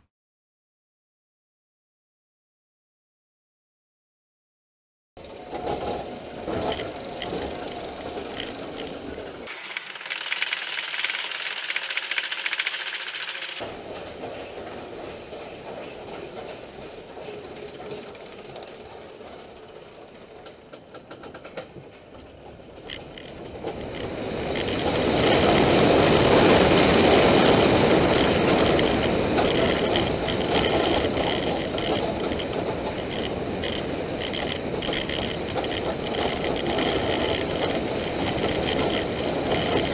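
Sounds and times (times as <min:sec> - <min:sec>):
roller coaster rumbling on track: 0:05.2 - 0:09.5, 0:13.6 - 0:39.9.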